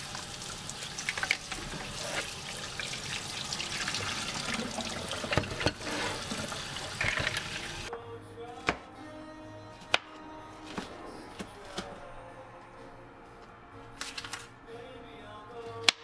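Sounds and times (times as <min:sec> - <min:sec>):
hands rinsing mussels: 0:00.0 - 0:07.9
tap water running into bowl: 0:00.0 - 0:07.9.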